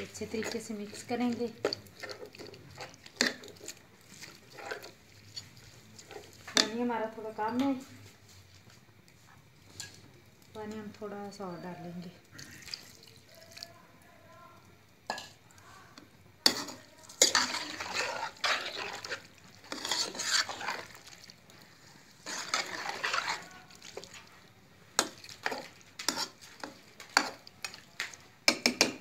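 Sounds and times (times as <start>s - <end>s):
spoon scraping meat in wok: 0.0s - 7.8s, 16.0s - 29.0s
spoon tapping metal pan: 28.0s - 29.0s.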